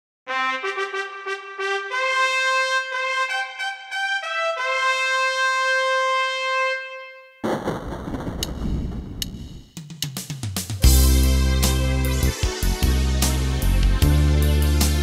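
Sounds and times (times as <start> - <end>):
trumpet fanfare: 0.3 - 7.5, 10.8 - 14.8
loud crash: 7.4 - 9.7.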